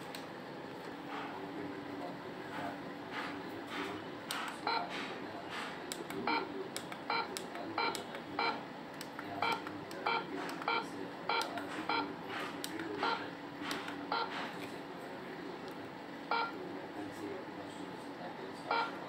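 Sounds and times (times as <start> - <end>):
keypad beeps: 7.1 - 8.6, 9.4 - 12.1, 14.1 - 14.3, 16.3 - 16.6, 18.7 - 19.0.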